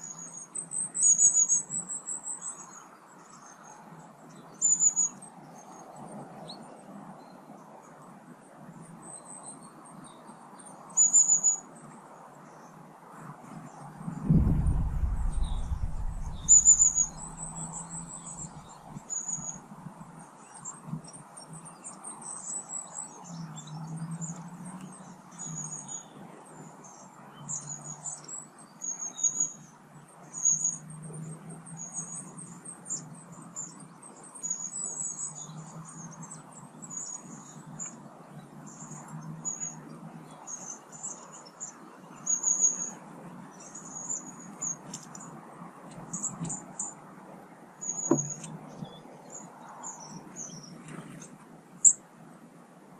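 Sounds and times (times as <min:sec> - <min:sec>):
faint low hum: 0:14.1 - 0:19.0
small birds chirping: 0:14.1 - 0:30.8.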